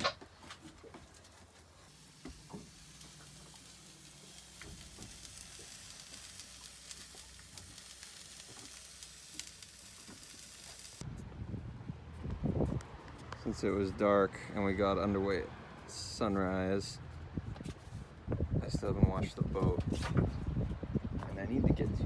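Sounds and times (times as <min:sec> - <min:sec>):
hot dogs sizzling in a pan: 0:01.8 - 0:11.0.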